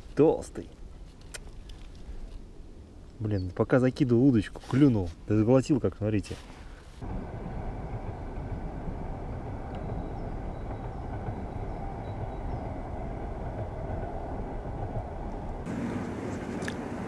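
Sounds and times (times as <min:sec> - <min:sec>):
wind buffeting microphone: 0:07.0 - 0:17.0.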